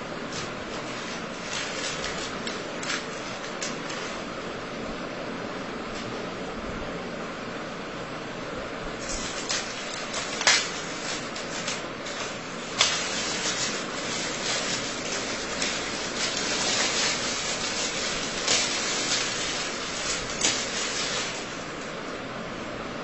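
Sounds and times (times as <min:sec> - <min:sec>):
paper rustling and crinkling: 0:00.2 - 0:04.4, 0:09.0 - 0:22.0
sharp paper crackles: 0:00.3 - 0:04.4, 0:09.0 - 0:22.0.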